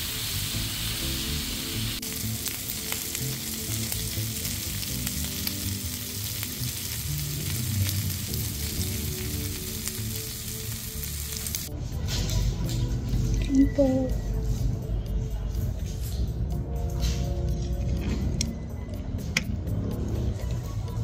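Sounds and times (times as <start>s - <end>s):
meat sizzling and popping: 0.0s - 11.7s.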